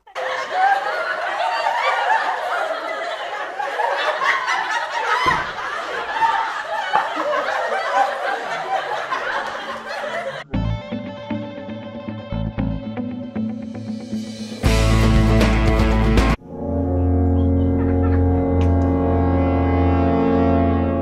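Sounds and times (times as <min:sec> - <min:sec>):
crowd laughing: 0:00.0 - 0:10.5, 0:17.1 - 0:21.0.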